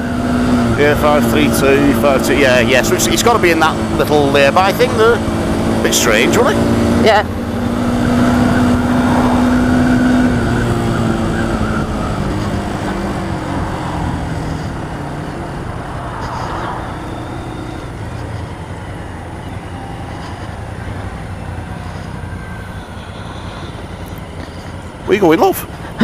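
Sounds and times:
motorcycle engine running: 0:00.0 - 0:26.0
wind and road noise: 0:00.0 - 0:26.0.

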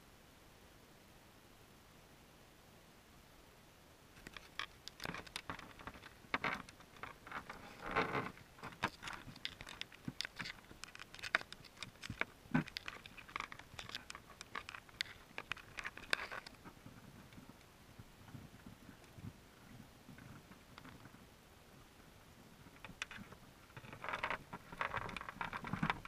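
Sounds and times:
underwater clicks and crackles: 0:04.2 - 0:21.2, 0:22.6 - 0:26.0.

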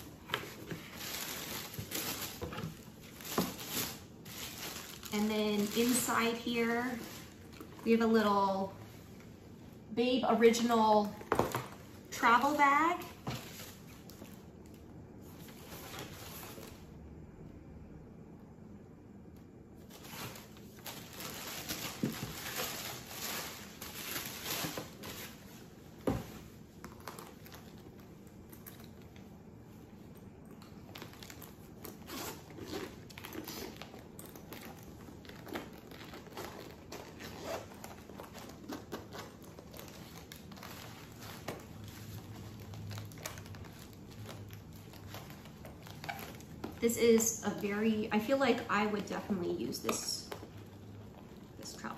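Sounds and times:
paper and packaging crinkling: 0:00.0 - 0:09.0, 0:19.9 - 0:29.3, 0:30.0 - 0:51.9
fabric bag rustling: 0:00.0 - 0:09.2, 0:19.9 - 0:26.7, 0:30.8 - 0:51.9.

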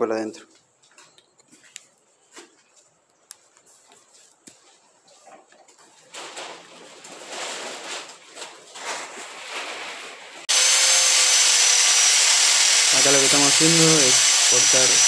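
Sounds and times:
scraping and handling noises: 0:00.8 - 0:10.4
angle grinder cutting metal: 0:10.5 - 0:15.0.

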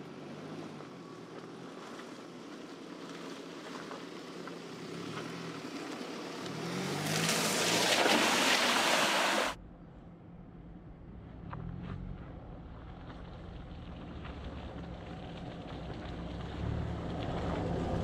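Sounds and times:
diesel engine at low revs: 0:10.6 - 0:18.0.

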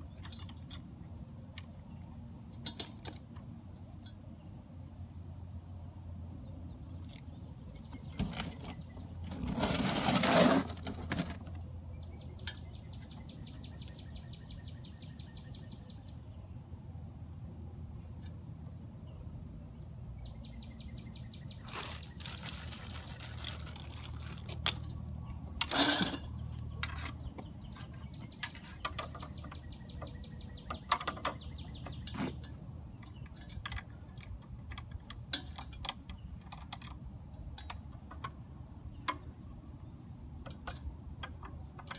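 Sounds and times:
small clicks and clinks of parts: 0:00.0 - 0:04.3, 0:18.2 - 0:18.8, 0:23.4 - 0:39.3, 0:40.4 - 0:41.9
bird singing a rapid trill: 0:11.9 - 0:16.6, 0:20.2 - 0:22.6, 0:26.2 - 0:33.6
loud rustle: 0:21.6 - 0:24.8.

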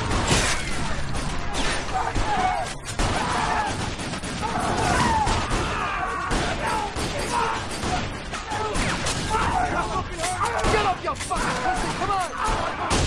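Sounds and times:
rapid gunshots: 0:00.0 - 0:13.0
people shouting: 0:00.5 - 0:13.0.

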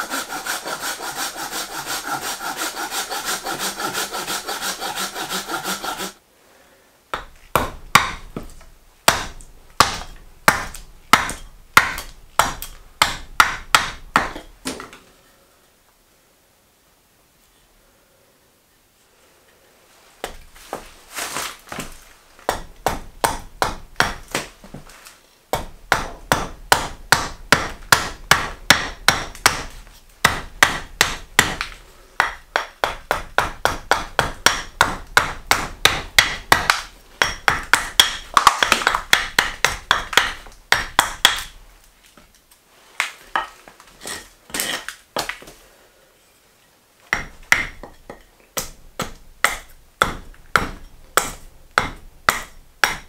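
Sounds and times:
axe chopping wood: 0:07.2 - 0:14.8, 0:21.7 - 0:24.5, 0:25.5 - 0:41.6, 0:47.1 - 0:53.0.

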